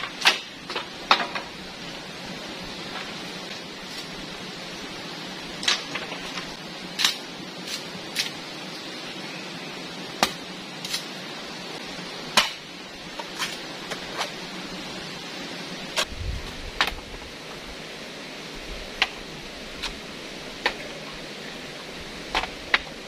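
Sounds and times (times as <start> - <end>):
stream rushing over rocks: 0.0 - 23.0
machete chopping bamboo: 7.0 - 8.3, 10.2 - 11.0, 12.3 - 14.0.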